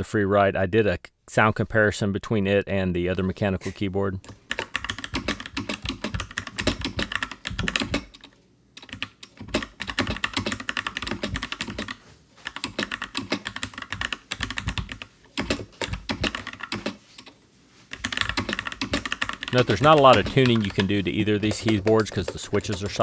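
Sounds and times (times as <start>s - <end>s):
mechanical keyboard key clacks: 4.5s - 17.0s, 18.0s - 23.0s.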